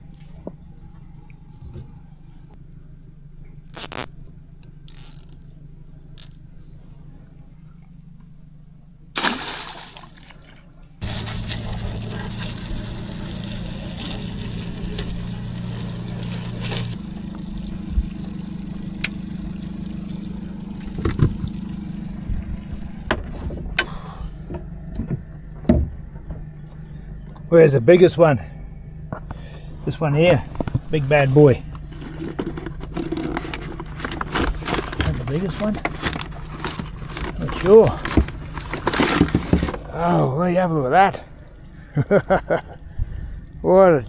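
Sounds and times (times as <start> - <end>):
motor humming: 11.0 - 27.4.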